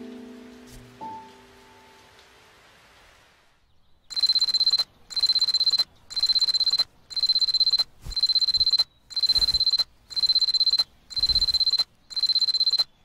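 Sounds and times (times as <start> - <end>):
alarm clock ringing: 4.1 - 12.9.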